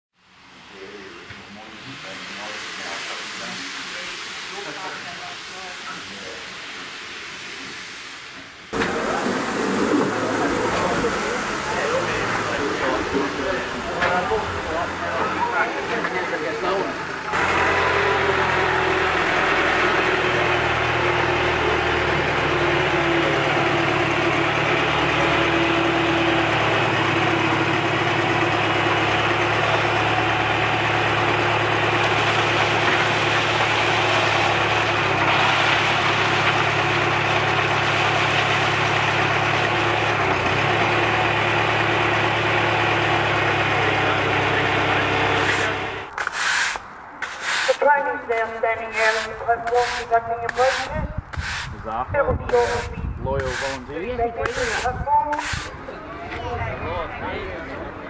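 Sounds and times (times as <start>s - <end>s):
tractor engine running: 8.8s - 51.6s.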